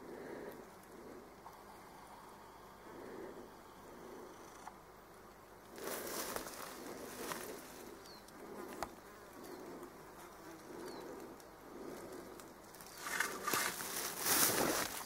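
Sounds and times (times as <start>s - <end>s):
flying insect buzzing: 5.7s - 15.0s
loud rustling: 12.9s - 15.0s.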